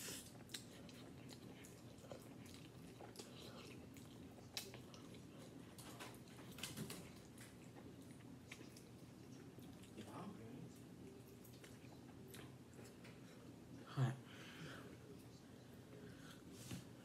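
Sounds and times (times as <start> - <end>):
noodles slurped and chewed: 0.0 - 10.2
low room hum: 0.0 - 17.0.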